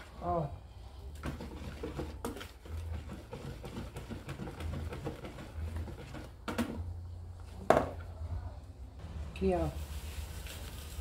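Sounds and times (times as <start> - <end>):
whisk beating batter in bowl: 1.2 - 6.5.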